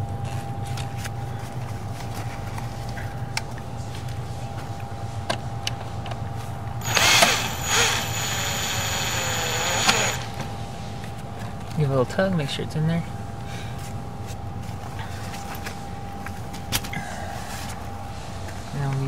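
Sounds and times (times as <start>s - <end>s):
power drill whine: 6.8s - 10.4s.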